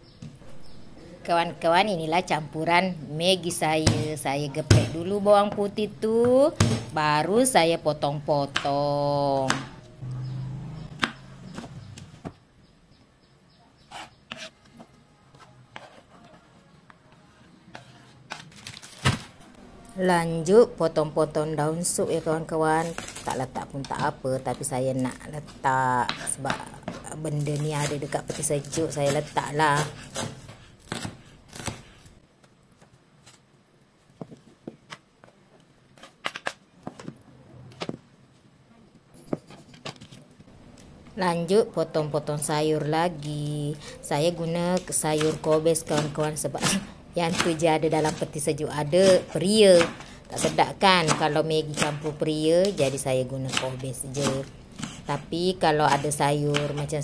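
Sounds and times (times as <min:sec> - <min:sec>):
knife chopping on wooden board: 0:49.0 - 0:55.2.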